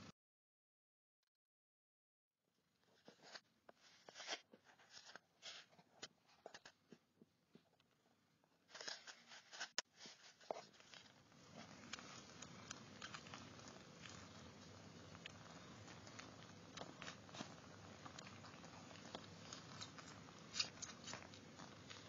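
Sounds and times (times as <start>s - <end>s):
soft steady noise: 2.6s - 22.0s
kittens suckling wet clicks: 11.4s - 22.0s.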